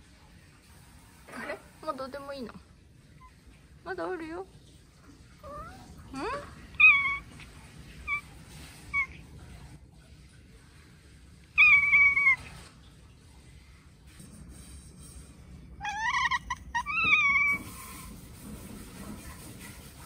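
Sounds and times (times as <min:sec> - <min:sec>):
cats chirping and chattering: 0:05.4 - 0:09.4, 0:11.5 - 0:13.0, 0:15.6 - 0:19.1.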